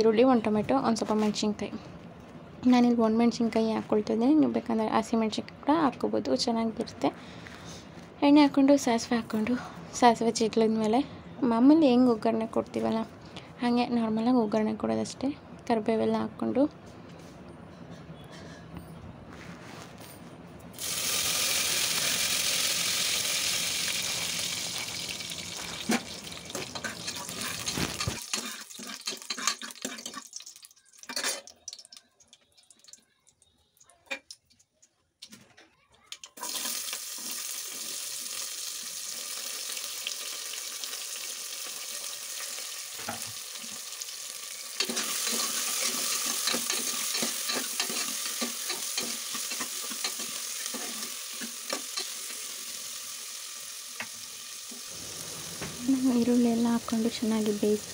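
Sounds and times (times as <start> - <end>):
hot oil crackling sizzle: 20.8 - 32.0, 36.4 - 57.9
ladle scraping pot: 25.7 - 30.3, 44.8 - 52.2.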